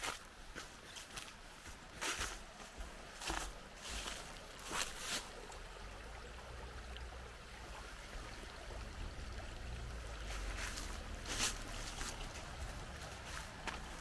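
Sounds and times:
footsteps on a trail: 0:00.0 - 0:05.5, 0:10.2 - 0:14.0
low rumble with light hiss: 0:02.4 - 0:14.0.

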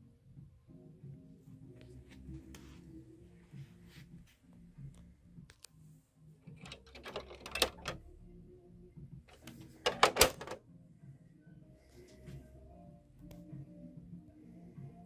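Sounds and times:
hard plastic clicking and rattling: 0:06.6 - 0:08.0, 0:09.3 - 0:10.6.

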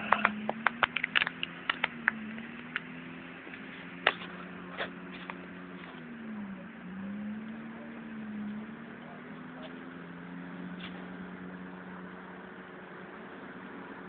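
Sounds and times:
off-road vehicle engine humming: 0:00.0 - 0:14.0
sharp clicks and snaps: 0:00.1 - 0:02.9.

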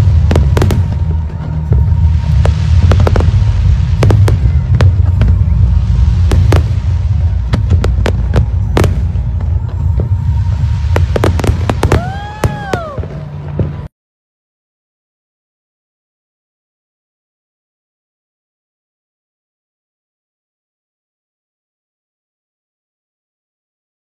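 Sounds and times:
fireworks booming and cracking: 0:00.0 - 0:13.9.

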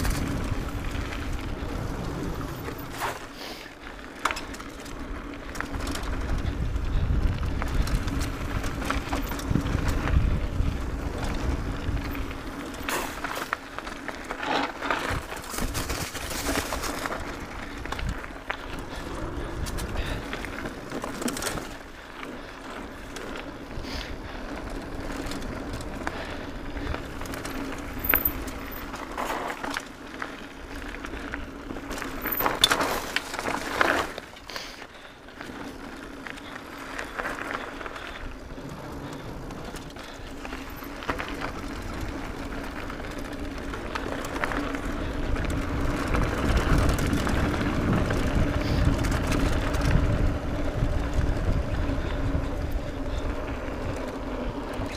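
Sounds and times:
wind rumble on microphone: 0:00.0 - 0:03.1, 0:05.2 - 0:13.4, 0:14.8 - 0:21.8, 0:37.6 - 0:54.9
bike rattling: 0:00.0 - 0:54.9
tyres rolling on dirt: 0:00.0 - 0:54.9.

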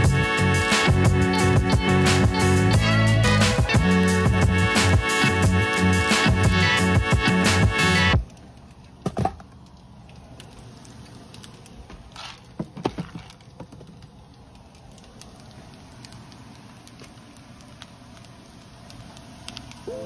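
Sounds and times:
items knocking and clattering on shelf: 0:09.0 - 0:09.5, 0:12.2 - 0:14.0.

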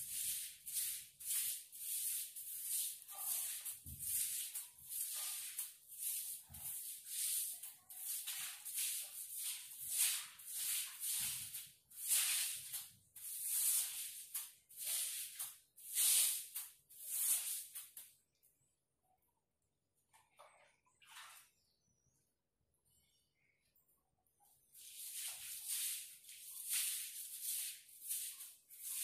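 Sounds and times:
broom swishing on wet tiles: 0:00.0 - 0:18.1, 0:24.7 - 0:29.0.

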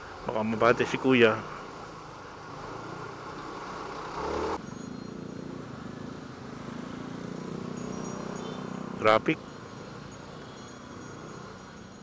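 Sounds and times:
scooter engine: 0:02.8 - 0:11.6.

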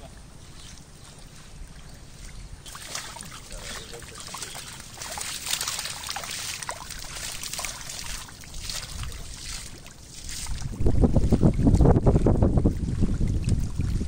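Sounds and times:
fish squelching and splashing in mud: 0:00.3 - 0:11.5.

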